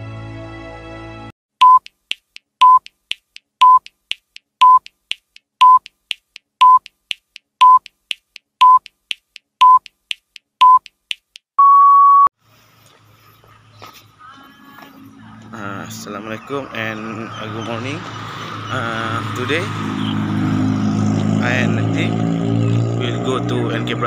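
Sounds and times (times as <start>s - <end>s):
short beeps: 1.6s - 1.9s, 2.6s - 2.8s, 3.6s - 3.9s, 4.6s - 4.9s, 5.6s - 5.9s, 6.6s - 6.9s, 7.6s - 7.9s, 8.6s - 8.9s, 9.6s - 9.9s, 10.6s - 10.8s, 11.6s - 12.3s
long higher beep: 11.6s - 12.3s.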